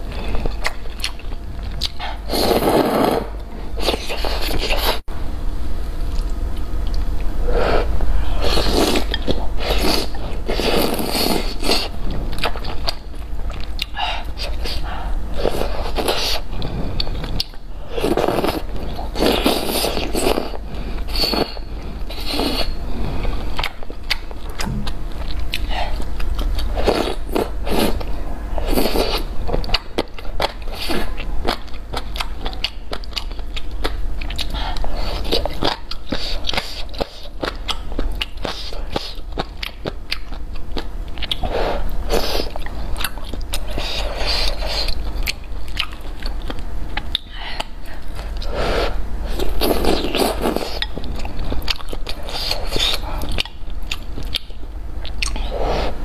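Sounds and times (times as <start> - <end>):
steady low hum: 0.0 - 56.0
slurping noodles and broth: 2.0 - 5.0, 8.4 - 11.9, 15.4 - 23.3
wet chewing: 42.1 - 48.5.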